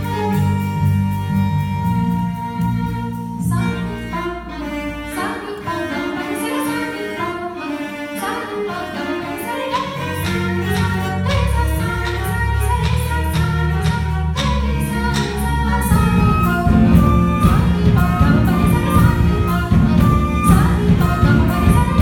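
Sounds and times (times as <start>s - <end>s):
low bass notes: 0.0s - 5.2s, 10.2s - 22.0s
chamber ensemble with strings: 0.0s - 22.0s.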